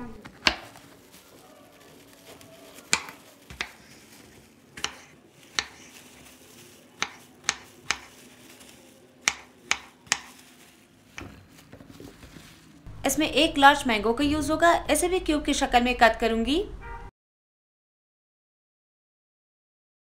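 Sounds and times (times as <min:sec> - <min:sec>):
knife chopping on wooden board: 0:00.2 - 0:00.8, 0:02.9 - 0:04.0, 0:04.8 - 0:06.0, 0:07.0 - 0:08.2, 0:09.2 - 0:10.4.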